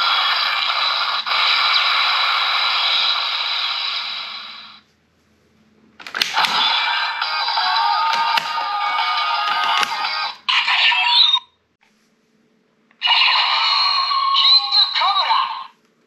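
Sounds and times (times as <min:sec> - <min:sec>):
toy electronic sound effects and music: 0:06.6 - 0:11.4, 0:13.0 - 0:15.7.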